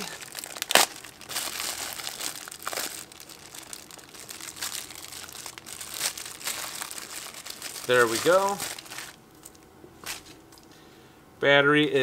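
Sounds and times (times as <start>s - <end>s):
plastic wrapping crinkling: 0.0s - 10.4s.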